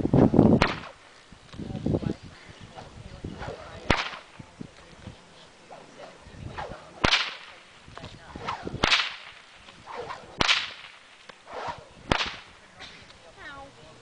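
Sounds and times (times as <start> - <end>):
whip cracking: 0.6 - 1.0, 3.4 - 4.4, 5.7 - 13.0
whip lash swishing: 0.6 - 1.0, 3.4 - 4.4, 5.7 - 12.6.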